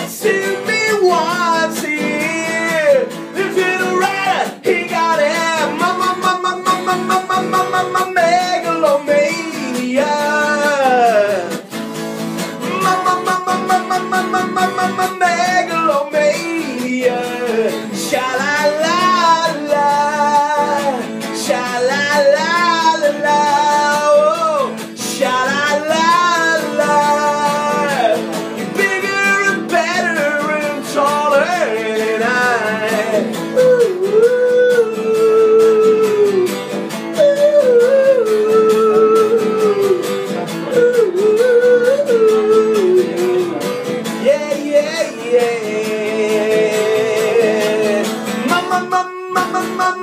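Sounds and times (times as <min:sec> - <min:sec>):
man singing: 0:00.0 - 0:50.0
strummed acoustic guitar: 0:00.0 - 0:50.0.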